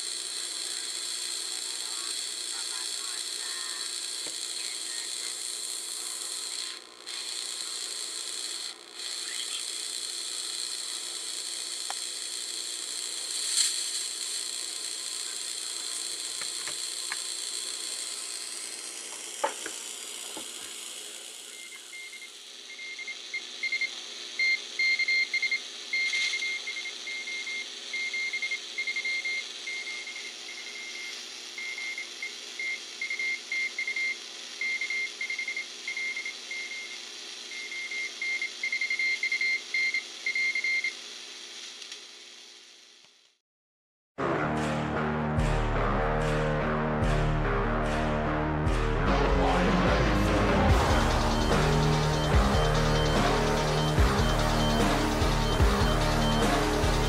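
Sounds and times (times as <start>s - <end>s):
radio static hiss: 0.0s - 24.8s, 49.1s - 57.0s
morse code beeps: 50.7s - 57.0s.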